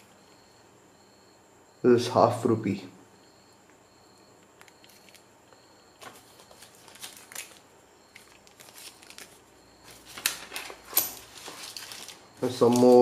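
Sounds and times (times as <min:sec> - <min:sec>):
plastic bags crinkling: 0:06.0 - 0:13.0.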